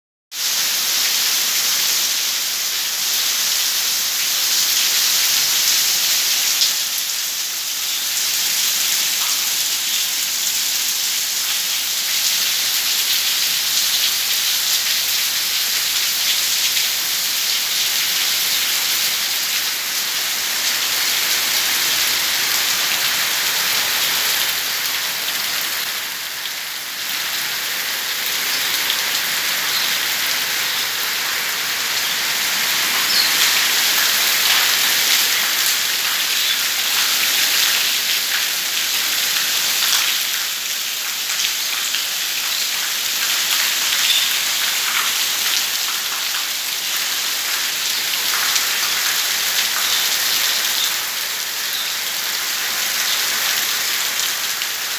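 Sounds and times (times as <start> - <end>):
heavy rain splashing on paving: 0.3 - 54.9.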